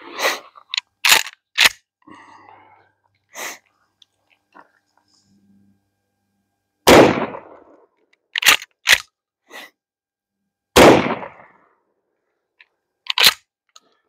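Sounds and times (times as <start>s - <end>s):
shotgun blasts: 6.9s - 7.7s, 10.8s - 11.6s.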